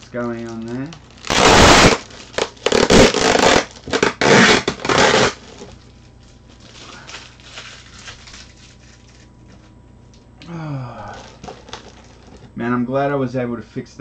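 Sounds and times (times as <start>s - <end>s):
packing tape ripping off plastic: 0.0s - 9.3s, 11.1s - 12.5s.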